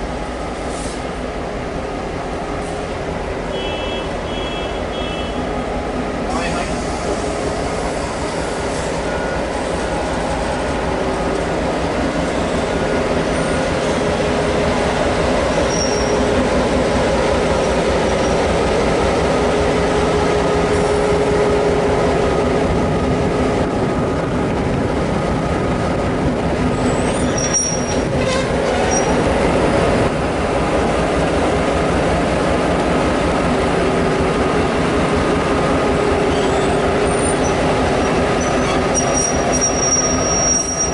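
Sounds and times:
locomotive engine running: 0.1 - 40.9
high squeaks: 36.3 - 40.9.

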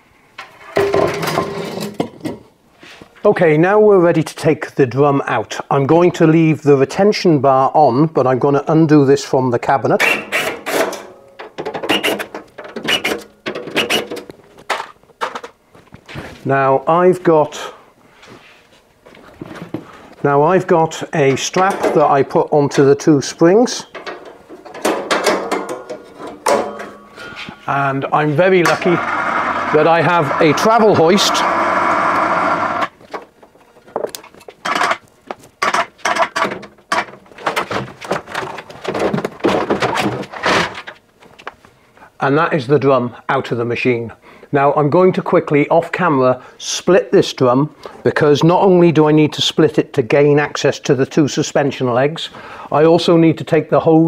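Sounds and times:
metal knocks clunks and scrapes: 0.4 - 2.5, 10.0 - 16.4, 23.9 - 27.7
cordless drill bursts: 10.0 - 10.8, 11.9 - 12.2, 12.9 - 13.2, 13.8 - 14.0, 29.0 - 32.9
metal clicks and clatter: 23.9 - 27.0
electric hoist motor running: 28.6 - 33.0.

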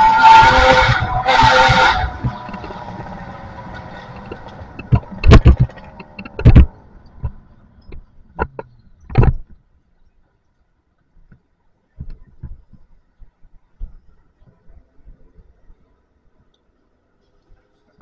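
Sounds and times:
loud thumps and knocks: 4.1 - 7.4.

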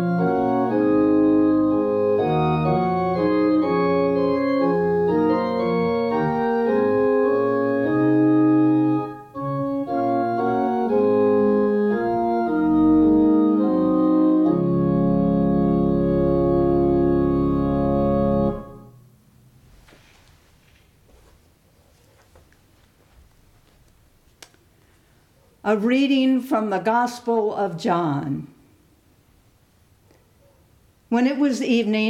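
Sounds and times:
organ playing sustained chords: 0.0 - 19.2.

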